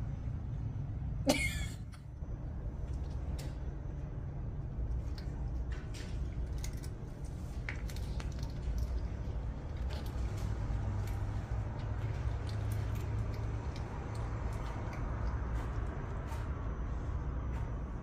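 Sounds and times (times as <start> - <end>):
steady low hum: 0.0 - 18.0
cats chewing dry food: 2.0 - 16.9.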